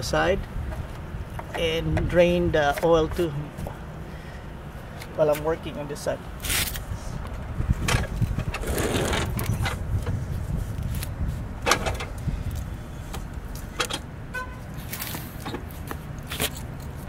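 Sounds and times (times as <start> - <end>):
lawn mower scraping on concrete: 8.4 - 9.7.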